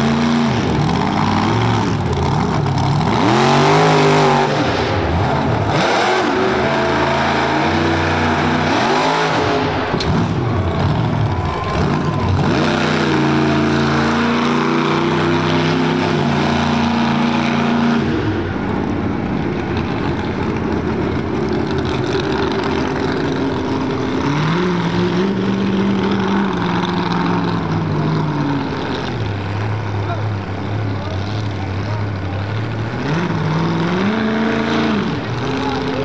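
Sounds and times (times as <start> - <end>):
monster truck engine revving: 0.0 - 36.0.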